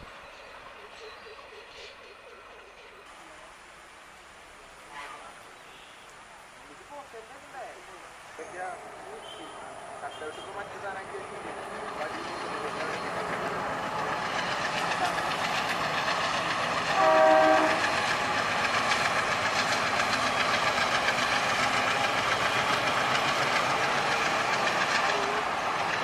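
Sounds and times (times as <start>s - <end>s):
diesel locomotive running past: 0.0s - 3.5s, 7.5s - 26.0s
train horn blast: 16.8s - 18.2s.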